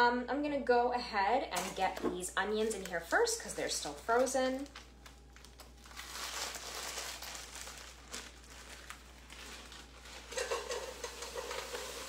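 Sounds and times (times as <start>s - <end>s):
crinkling plastic bag: 1.6s - 12.0s
butter hissing in pot: 10.3s - 12.0s.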